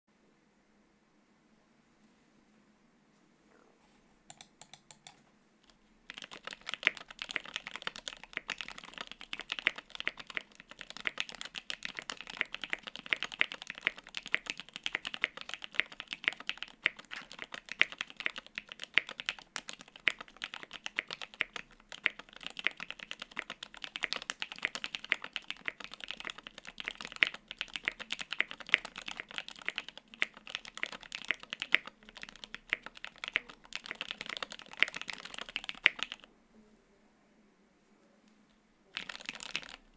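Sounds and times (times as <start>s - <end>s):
typing on mechanical keyboard: 6.1s - 36.3s, 38.9s - 39.9s.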